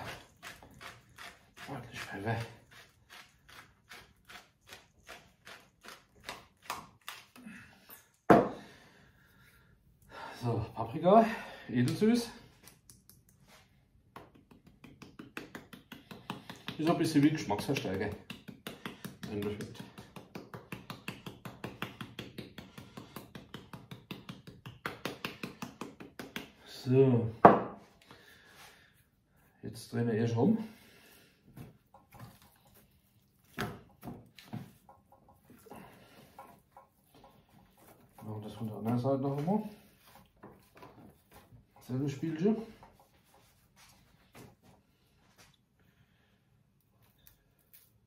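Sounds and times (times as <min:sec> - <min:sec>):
pepper mill grinding: 0:00.0 - 0:07.2.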